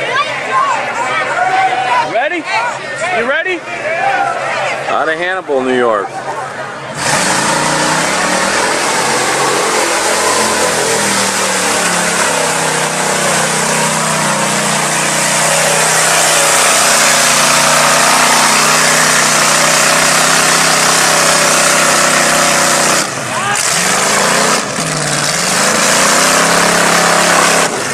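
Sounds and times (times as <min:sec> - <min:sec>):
truck engine revving hard: 0:06.8 - 0:27.9
tires spinning in mud: 0:06.9 - 0:27.9.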